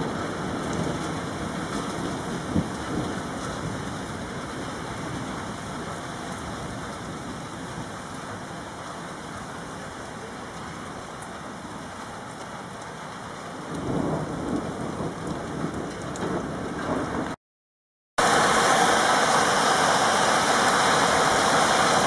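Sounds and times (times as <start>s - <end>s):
rolling thunder rumble: 0.0s - 8.0s, 13.7s - 17.4s
steady rain: 0.0s - 17.4s, 18.2s - 22.0s.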